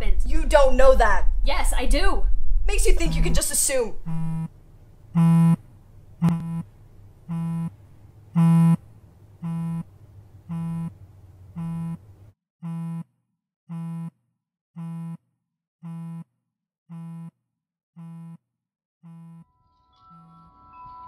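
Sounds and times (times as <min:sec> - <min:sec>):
room noise: 0:02.7 - 0:12.3
phone vibrating on a wooden table: 0:04.1 - 0:04.5, 0:05.2 - 0:05.6, 0:06.2 - 0:06.7, 0:07.3 - 0:07.8, 0:08.4 - 0:08.8, 0:09.4 - 0:09.9, 0:10.5 - 0:12.0, 0:12.6 - 0:13.1, 0:13.7 - 0:14.2, 0:14.8 - 0:15.2, 0:15.8 - 0:16.3, 0:16.9 - 0:17.4, 0:18.0 - 0:18.4, 0:19.0 - 0:19.6.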